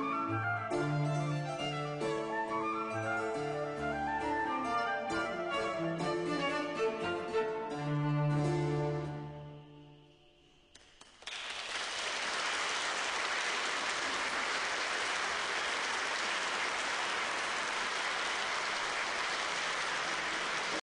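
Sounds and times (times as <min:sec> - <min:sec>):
audience applauding: 0:10.7 - 0:20.8.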